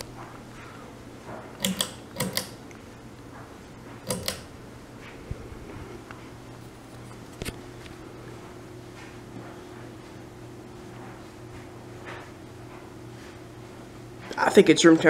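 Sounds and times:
fan motor humming: 0.0 - 15.0
pull-chain switch clicking: 1.6 - 2.6, 4.1 - 4.5.

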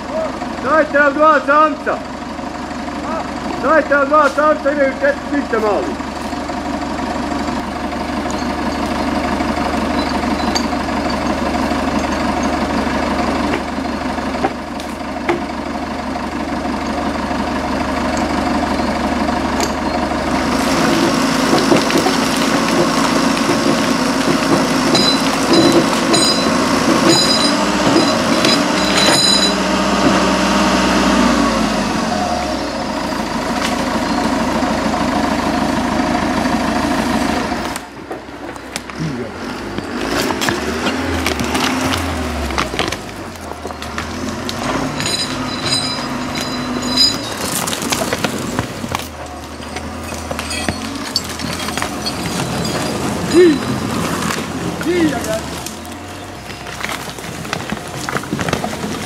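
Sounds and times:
tractor engine running: 0.0 - 59.0
short high clinks: 24.9 - 29.6, 44.8 - 47.6, 49.6 - 53.9.

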